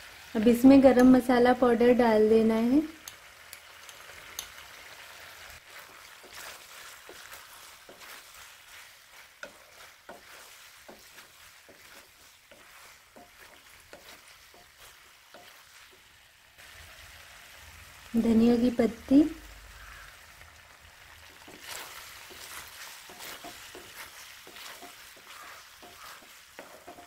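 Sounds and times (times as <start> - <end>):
faint sizzle: 0.0 - 27.0
spatula scraping a metal pan: 5.7 - 15.8, 21.3 - 27.0.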